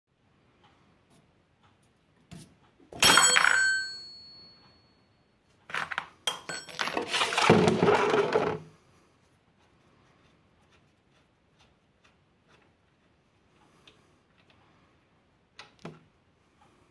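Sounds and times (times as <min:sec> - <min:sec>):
metal wrench clinking: 0:03.0 - 0:04.6, 0:06.3 - 0:07.1
plastic container scraping on floorboards: 0:06.8 - 0:08.7.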